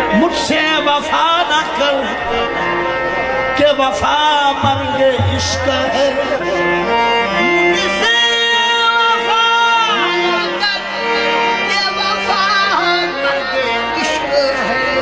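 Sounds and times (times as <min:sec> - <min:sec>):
man singing: 0:00.0 - 0:02.5, 0:03.4 - 0:15.0
harmoniums playing: 0:00.0 - 0:15.0.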